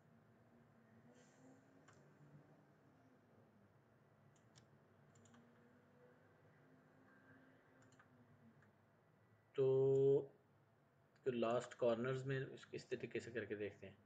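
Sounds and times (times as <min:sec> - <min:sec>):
computer mouse clicks: 0:01.8 - 0:02.1, 0:04.3 - 0:05.5, 0:07.8 - 0:08.7, 0:11.6 - 0:11.8.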